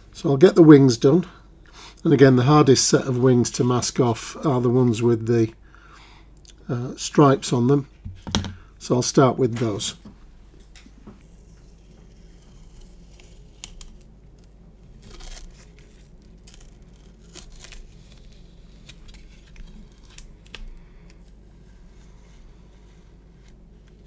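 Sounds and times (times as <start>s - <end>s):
tape tearing and crinkling: 12.2s - 20.8s.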